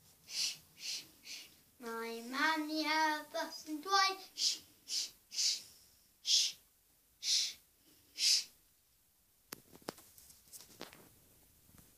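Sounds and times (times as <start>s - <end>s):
girl shushing: 0.3s - 1.5s, 4.2s - 6.6s, 7.2s - 7.6s, 8.2s - 8.6s.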